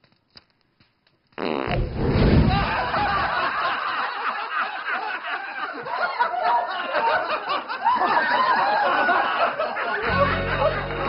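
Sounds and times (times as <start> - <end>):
group of people laughing: 2.3 - 11.0.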